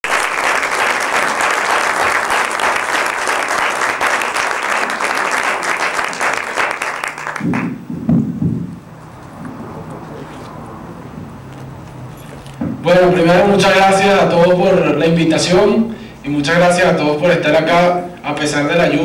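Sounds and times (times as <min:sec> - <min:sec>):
audience applauding: 0:00.0 - 0:07.9
microphone handling thuds: 0:07.4 - 0:09.8, 0:12.6 - 0:12.9.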